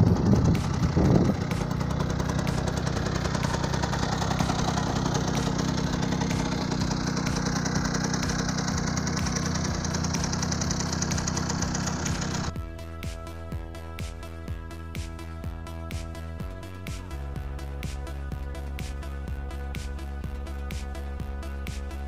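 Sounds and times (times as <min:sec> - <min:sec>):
moped engine idling: 0:00.0 - 0:12.6.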